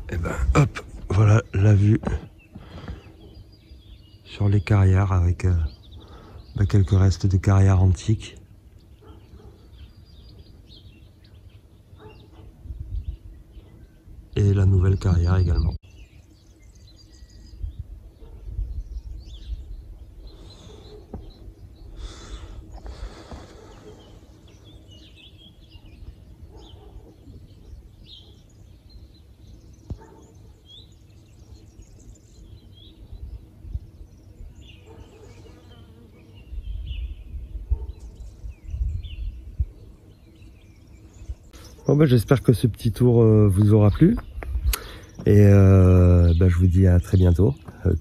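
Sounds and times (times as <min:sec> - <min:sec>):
small birds chirping: 0:00.0 - 0:48.0
wind gusts on microphone: 0:12.4 - 0:14.4, 0:17.4 - 0:20.5, 0:36.5 - 0:40.0, 0:43.8 - 0:45.6.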